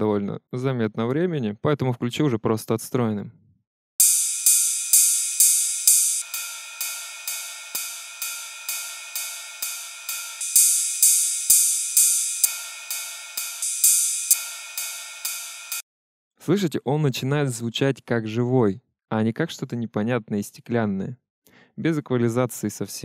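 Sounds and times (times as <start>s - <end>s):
ride cymbal pattern: 4.0s - 15.8s.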